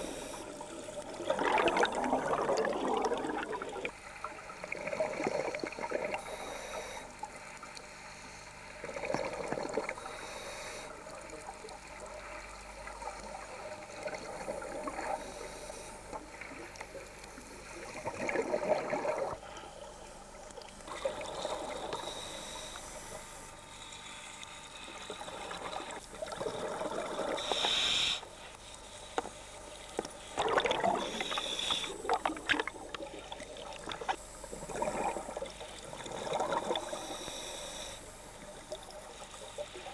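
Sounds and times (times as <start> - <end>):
diver breathing through regulator: 0.0 - 0.8, 5.0 - 7.3, 8.0 - 11.1, 14.3 - 19.9, 20.9 - 32.5, 34.0 - 39.9
quiet underwater gurgling: 0.0 - 39.9
exhaled bubbles rushing: 1.0 - 3.9, 17.9 - 19.4, 30.4 - 31.2, 32.0 - 36.9.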